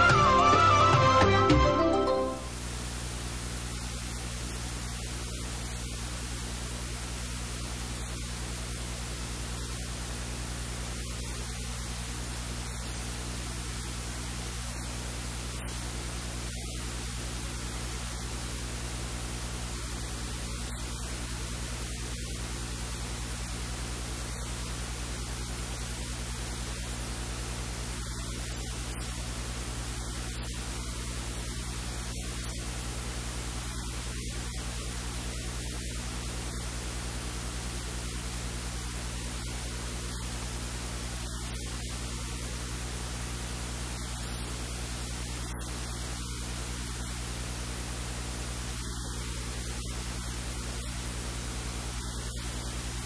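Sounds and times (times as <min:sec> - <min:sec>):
static hiss: 0:02.1 - 0:53.0
low electrical hum: 0:02.2 - 0:53.0.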